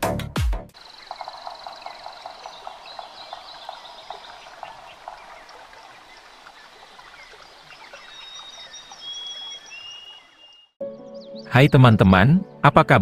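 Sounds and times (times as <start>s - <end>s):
forest stream running water: 0.8s - 10.8s
small birds chirping: 0.8s - 12.2s.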